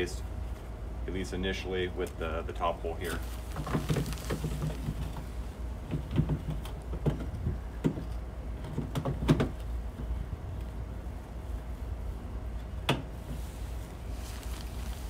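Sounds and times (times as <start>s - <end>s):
steady low hum: 0.0s - 15.0s
plastic mud flap knocks and clicks: 5.9s - 9.6s.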